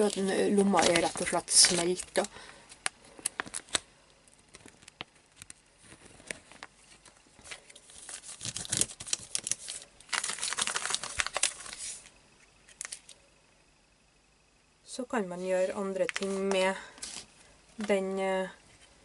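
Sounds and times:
plastic page crinkling: 0:00.0 - 0:12.1, 0:12.7 - 0:13.2, 0:15.6 - 0:18.0.

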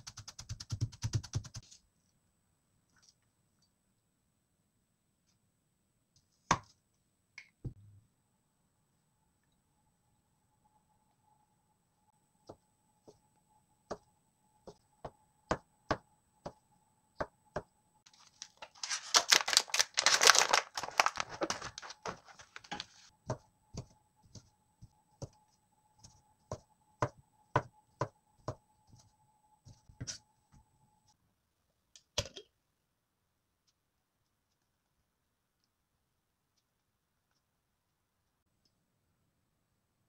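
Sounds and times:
plastic packet crinkling: 0:18.1 - 0:23.0
knife chopping on plastic board: 0:26.0 - 0:28.6.

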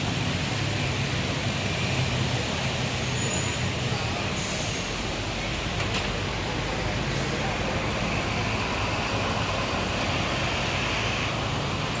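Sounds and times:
diesel bus engine running: 0:00.0 - 0:12.0
air brake hiss: 0:04.3 - 0:05.0.

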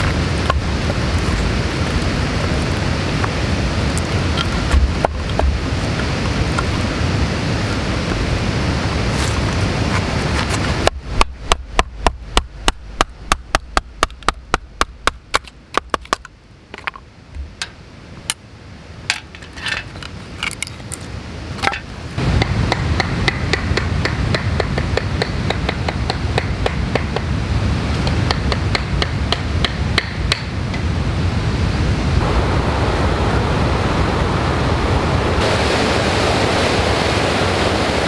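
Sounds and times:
steady rushing noise: 0:00.0 - 0:38.0
wood splitting cracks: 0:13.6 - 0:17.0.

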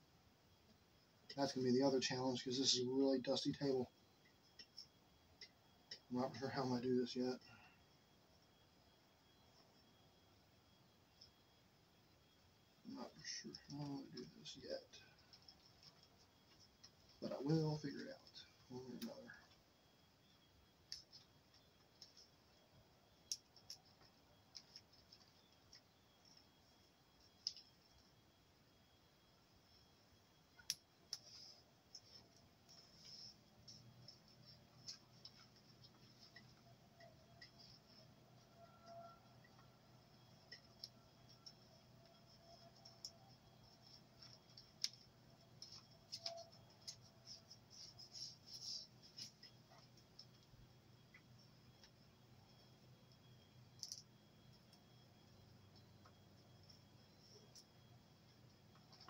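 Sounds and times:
wires and plastic parts clicking: 0:04.2 - 0:06.1, 0:20.8 - 0:28.2, 0:30.4 - 0:59.0.

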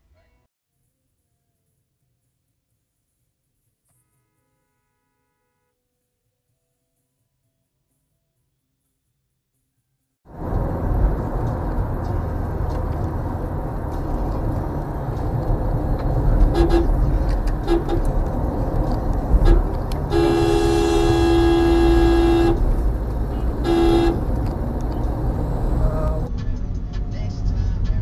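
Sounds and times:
road and engine rumble: 0:10.3 - 0:28.0
car horn tooting: 0:10.4 - 0:26.3.

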